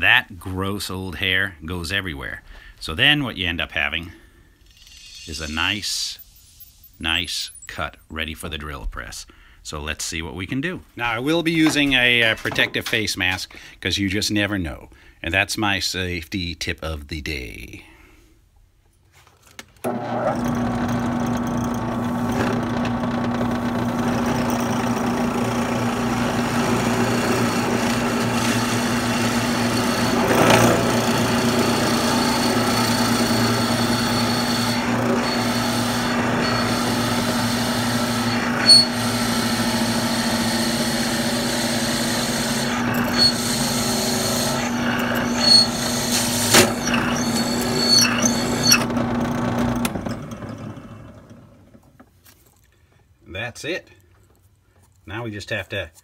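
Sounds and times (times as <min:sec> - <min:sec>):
drill press motor running: 0:19.8 - 0:51.8
drill bit catching: 0:19.9 - 0:50.4.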